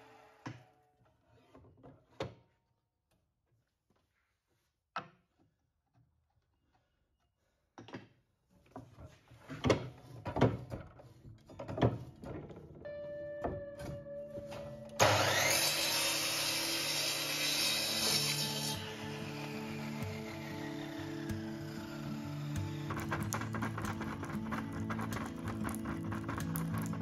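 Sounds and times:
wooden board knocking and scraping: 0:22.8 - 0:27.0.

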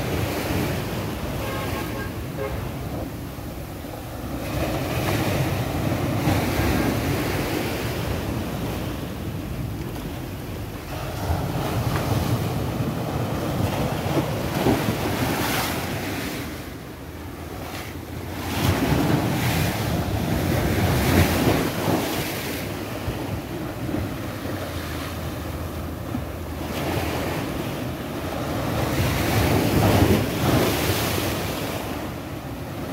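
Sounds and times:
sea waves breaking on a seawall: 0:00.0 - 0:32.9
wind buffeting microphone: 0:18.3 - 0:24.8.

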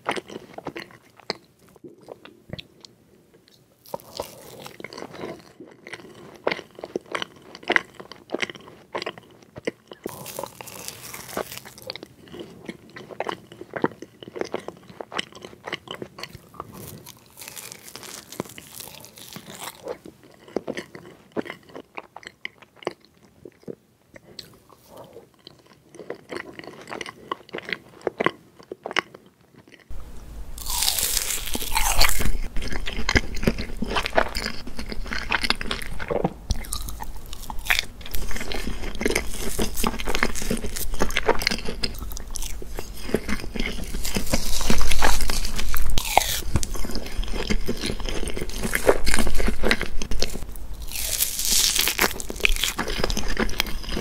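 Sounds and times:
chewing and mouth sounds: 0:00.0 - 0:30.0, 0:30.6 - 0:54.0
low hum: 0:29.9 - 0:41.0, 0:49.2 - 0:52.6.

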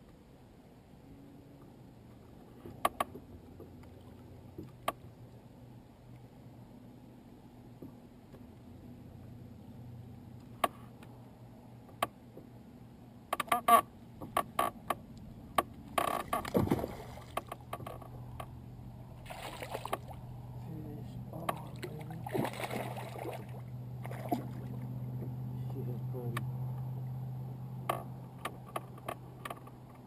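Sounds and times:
steady low hum: 0:00.0 - 0:30.0
fish splashing at surface: 0:19.2 - 0:20.2, 0:21.7 - 0:24.8.

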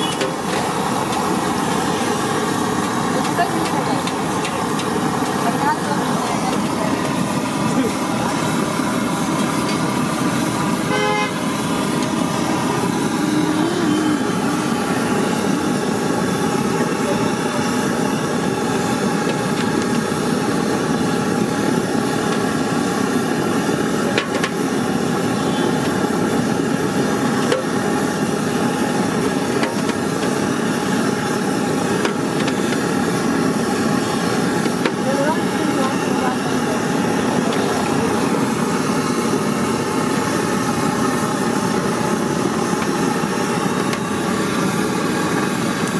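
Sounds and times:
vehicle horn toot: 0:00.0 - 0:00.4, 0:10.9 - 0:11.4, 0:25.4 - 0:25.8
food deep-frying in oil: 0:00.0 - 0:13.2, 0:14.1 - 0:45.9
street traffic: 0:00.0 - 0:45.9.

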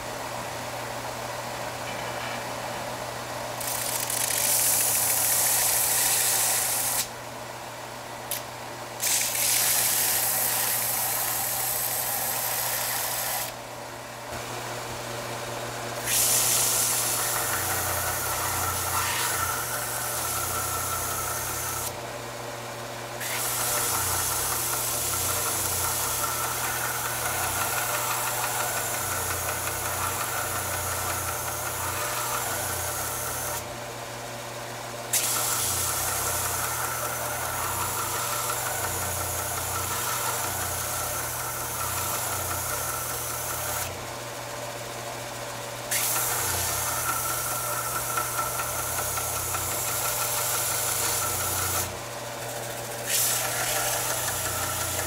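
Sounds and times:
belt sander motor hum: 0:14.4 - 0:22.0, 0:23.2 - 0:33.7, 0:35.1 - 0:44.7, 0:45.4 - 0:55.0
metal grinding on sanding belt: 0:16.0 - 0:21.9, 0:23.2 - 0:33.6, 0:53.1 - 0:55.0.

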